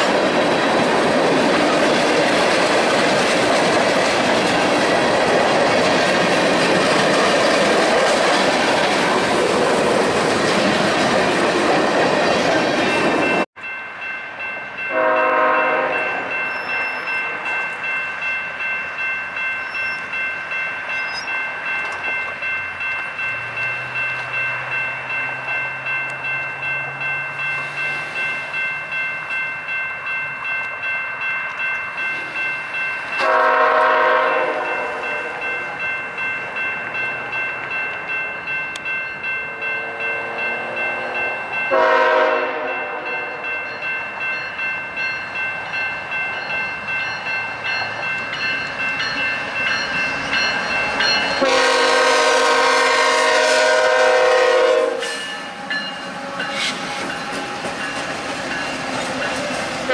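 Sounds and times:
bell ringing steadily: 0:12.1 - 0:52.2, 0:55.0 - 0:59.6
diesel locomotive horn: 0:14.9 - 0:17.1, 0:33.2 - 0:35.4, 0:39.4 - 0:43.4, 0:51.4 - 0:55.3.

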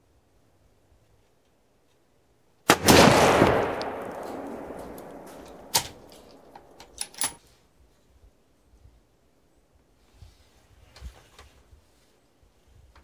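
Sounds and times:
rifle shot with echo: 0:02.7 - 0:06.9
rifle bolt clicks: 0:03.3 - 0:07.4.

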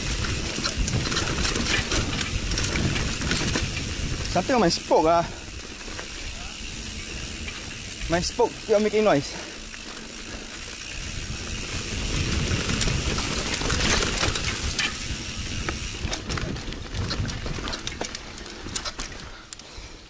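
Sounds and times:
wind hiss: 0:00.0 - 0:17.4
sharp clicks from bike wheel: 0:00.0 - 0:19.8
bike tyres rumbling on dirt: 0:00.0 - 0:20.0.

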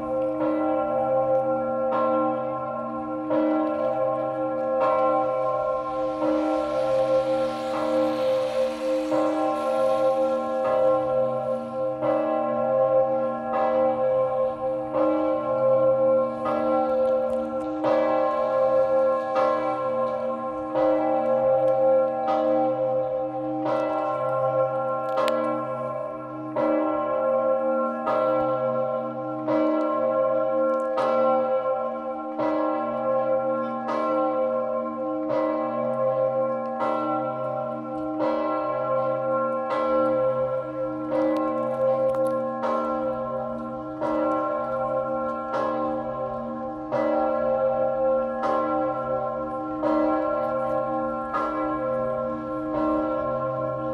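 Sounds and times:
large bell ringing: 0:00.0 - 0:53.9.

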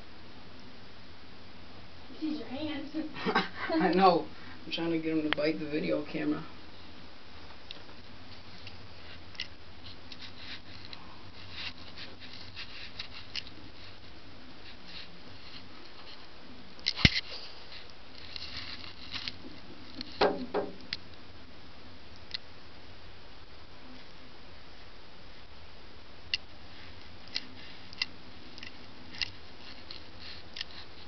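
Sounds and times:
sharp knocks on camera: 0:20.2 - 0:20.8.

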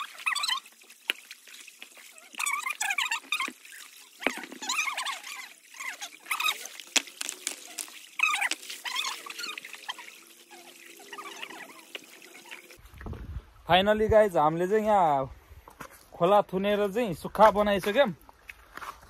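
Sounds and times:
stream water trickling and splashing: 0:00.0 - 0:13.6.

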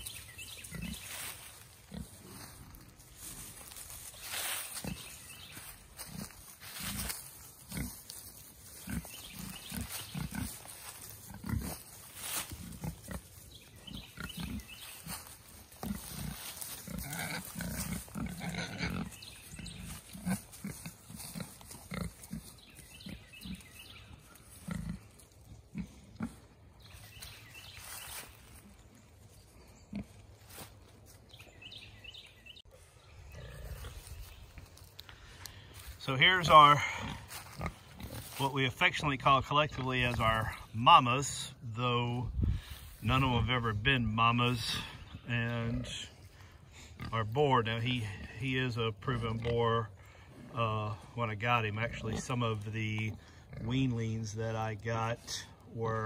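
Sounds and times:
dry leaves crackling: 0:00.0 - 0:32.2, 0:33.8 - 0:36.0
pigs grunting: 0:00.5 - 0:03.8, 0:04.7 - 0:08.1, 0:08.7 - 0:26.6, 0:33.2 - 0:34.1, 0:36.4 - 0:38.4, 0:44.4 - 0:56.0.

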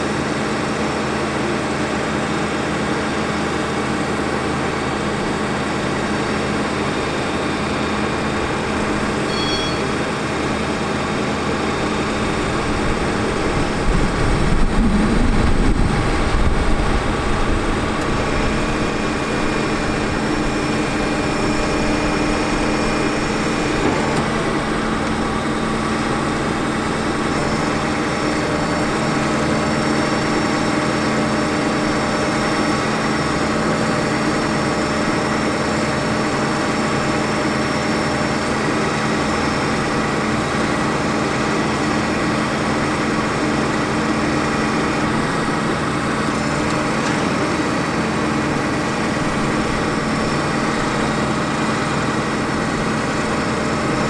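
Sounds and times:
diesel engine idling hum: 0:00.0 - 0:54.0
low rumble: 0:13.5 - 0:18.7.

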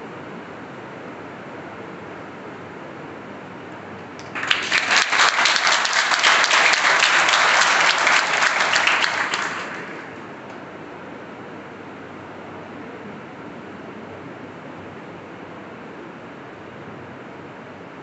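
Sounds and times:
audience applauding: 0:04.2 - 0:10.5.

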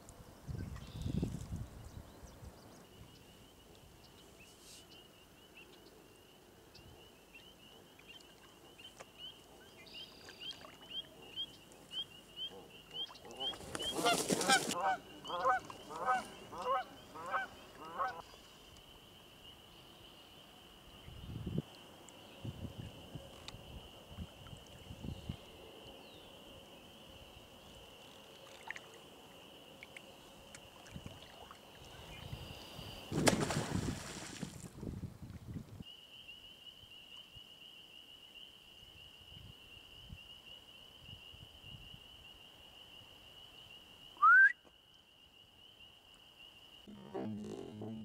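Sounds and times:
geese honking: 0:13.4 - 0:18.2.

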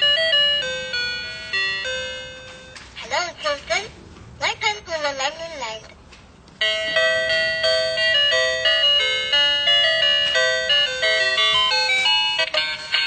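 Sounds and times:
toy electronic melody: 0:00.0 - 0:02.8, 0:06.6 - 0:13.0.

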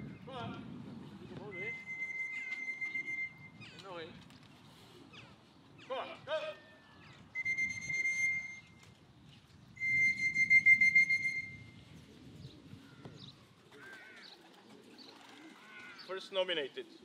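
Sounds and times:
shrill whistle: 0:01.6 - 0:03.5, 0:07.4 - 0:08.8, 0:09.8 - 0:11.6.

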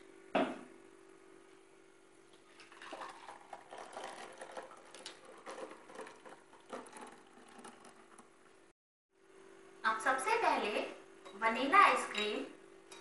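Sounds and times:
faint steady hum: 0:00.0 - 0:13.0
liquid trickling and spattering: 0:02.4 - 0:08.3.

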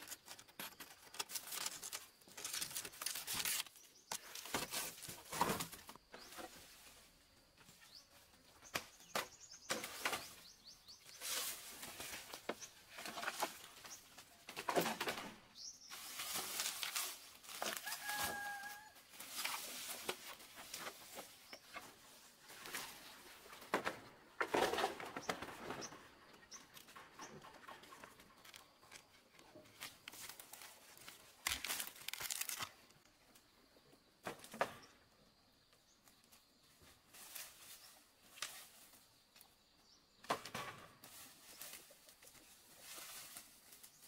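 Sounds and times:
dry leaves rustling and tearing: 0:00.0 - 0:05.3, 0:15.9 - 0:21.0, 0:29.7 - 0:32.9.

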